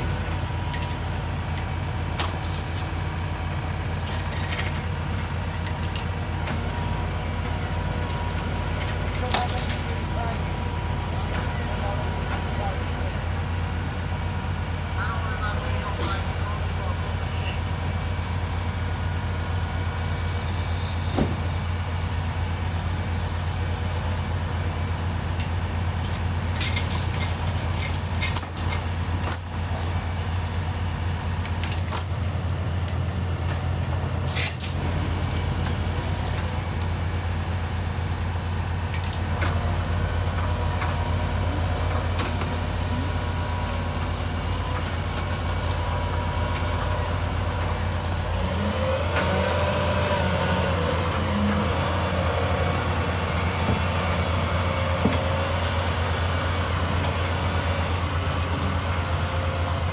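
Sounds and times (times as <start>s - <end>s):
diesel engines idling: 0.0s - 59.9s
metallic clinks of chains: 26.0s - 30.7s, 33.8s - 37.0s.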